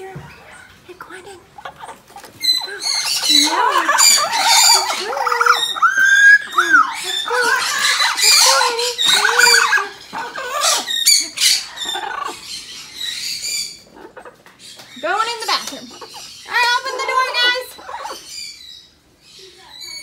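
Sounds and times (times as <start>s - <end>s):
parrot squawking: 1.4s - 19.0s.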